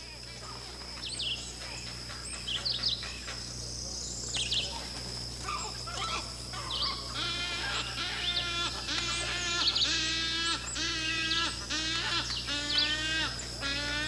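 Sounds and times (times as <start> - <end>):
bird chicks squawking begging calls: 5.4 - 14.0.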